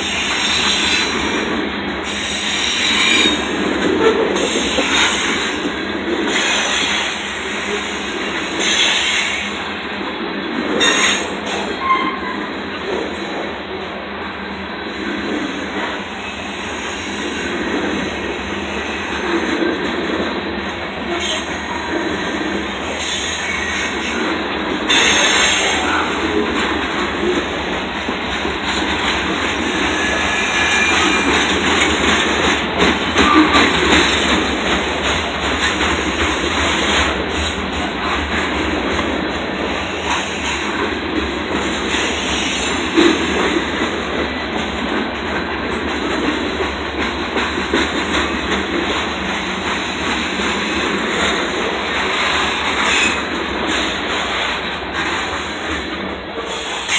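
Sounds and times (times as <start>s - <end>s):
train wheels rumbling on rail: 0.0s - 56.9s
wheels clacking over rail joints: 0.0s - 56.9s.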